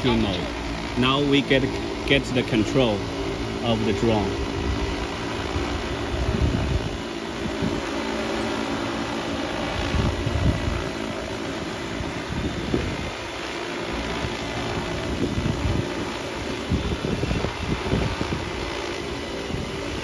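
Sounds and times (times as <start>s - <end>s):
drone propellers humming: 0.0s - 20.0s
wind rumbling on microphone: 4.4s - 8.0s, 9.5s - 11.0s, 12.0s - 13.2s, 14.3s - 20.0s.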